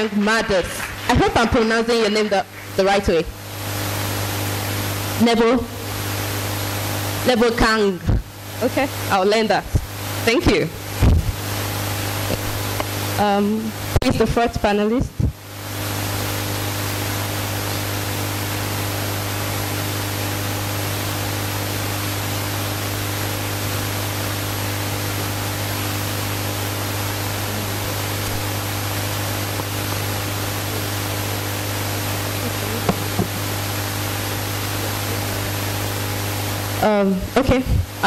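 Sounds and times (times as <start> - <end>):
steady hiss: 15.2 - 36.9.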